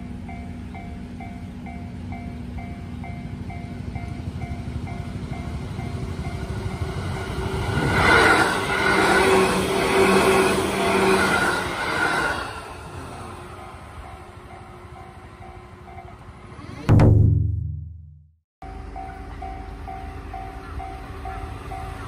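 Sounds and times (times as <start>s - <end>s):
level-crossing warning bell: 0.0s - 7.9s, 12.8s - 16.6s, 18.6s - 22.0s
train wheels rumbling on rails: 0.0s - 16.8s
train whine: 0.0s - 16.9s, 18.6s - 22.0s.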